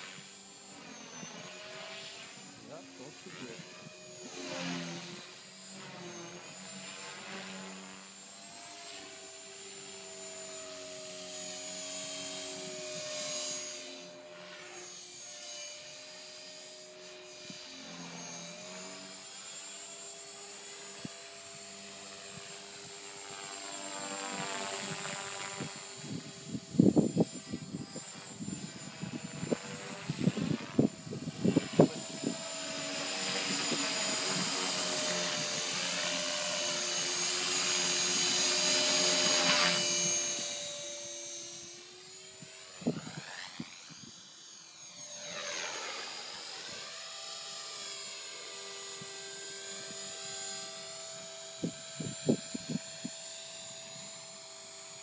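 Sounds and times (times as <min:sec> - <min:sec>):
model helicopter motor whine: 0:00.0 - 0:55.0
wind buffeting microphone: 0:25.6 - 0:32.5, 0:51.6 - 0:53.2.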